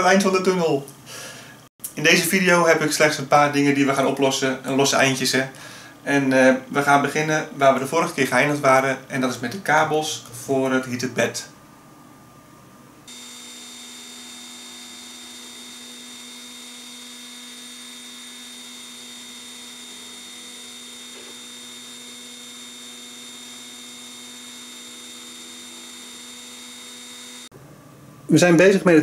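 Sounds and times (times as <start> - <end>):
router spindle humming and whining: 13.1 - 27.5.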